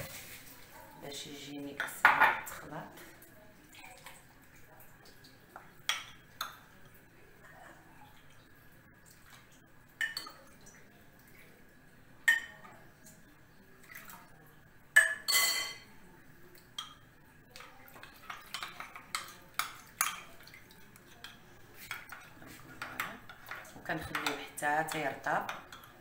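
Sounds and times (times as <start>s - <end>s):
dishes knocking and clinking: 1.8s - 2.6s, 15.0s - 15.9s, 21.2s - 26.0s.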